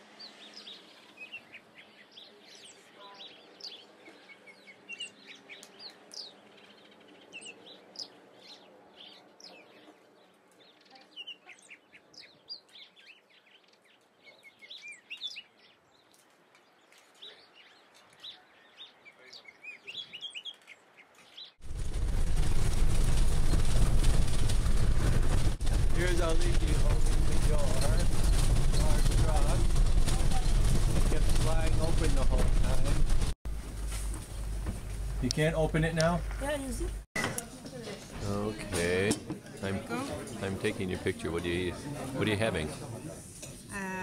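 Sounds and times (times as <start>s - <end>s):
small birds chirping: 0.0s - 24.8s, 25.5s - 33.4s
vehicle driving on gravel road: 21.6s - 37.0s.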